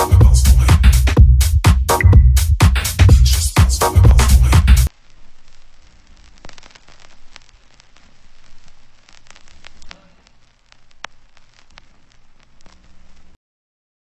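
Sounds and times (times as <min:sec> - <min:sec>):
low hiss: 0:02.8 - 0:13.4
sharp crackle clicks: 0:04.9 - 0:13.4.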